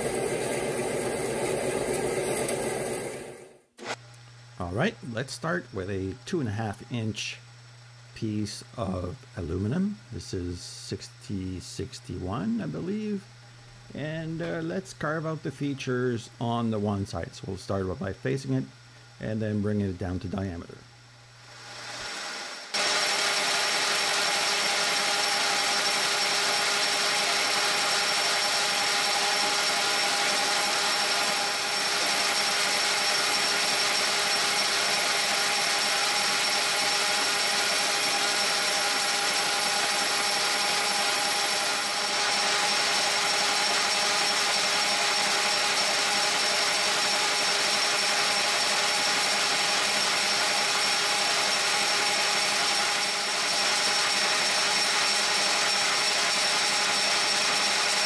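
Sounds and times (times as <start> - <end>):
lathe machine whine: 0.0 - 4.0, 21.4 - 58.0
cutting tool hiss: 21.5 - 58.0.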